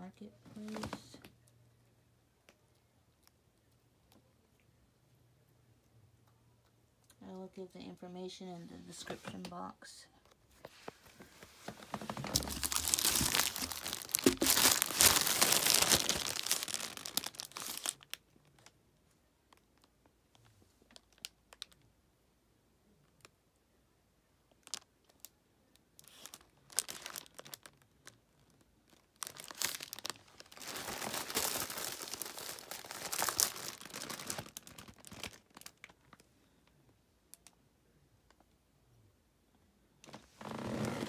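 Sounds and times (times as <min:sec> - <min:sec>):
plastic and bubble wrap crinkling: 0:00.6 - 0:01.2, 0:10.6 - 0:18.7, 0:24.6 - 0:24.8, 0:26.0 - 0:36.2, 0:40.1 - 0:41.0.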